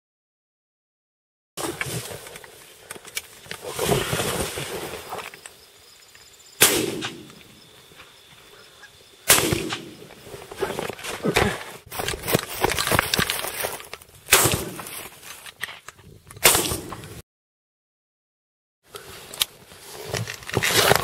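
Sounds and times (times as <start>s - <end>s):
shotgun blasts: 6.6s - 7.6s, 9.2s - 10.1s, 14.3s - 14.8s, 16.4s - 17.0s.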